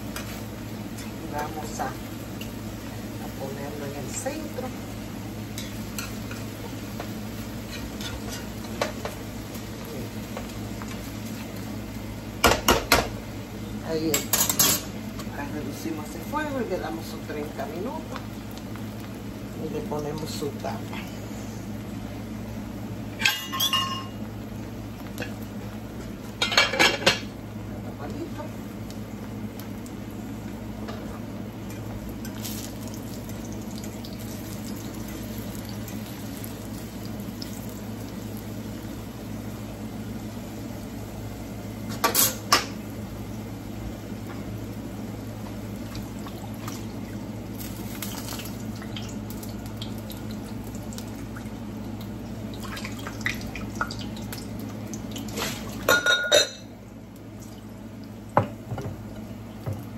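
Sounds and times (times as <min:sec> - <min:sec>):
plantain slices sizzling in oil: 0:00.0 - 0:58.3
cookware clinking: 0:23.2 - 0:24.2, 0:55.9 - 0:56.7.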